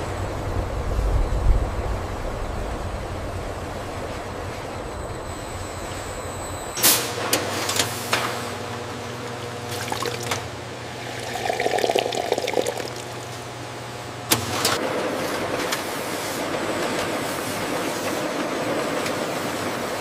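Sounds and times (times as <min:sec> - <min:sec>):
low machine hum: 0:08.5 - 0:14.6
liquid pouring and fizzing: 0:09.6 - 0:13.5.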